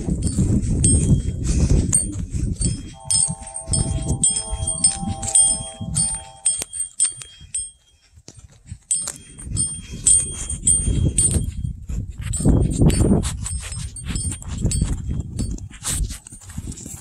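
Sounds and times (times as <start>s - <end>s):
high metallic chimes: 1.9s - 7.8s
steady hum: 2.9s - 6.8s.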